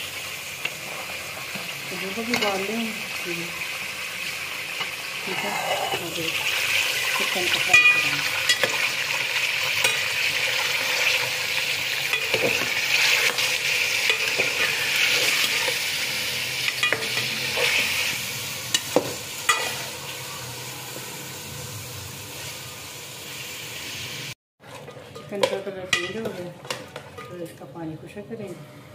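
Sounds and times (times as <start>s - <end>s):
chicken sizzling in pot: 0.0s - 26.2s
metal ladle scraping pot: 4.7s - 20.0s.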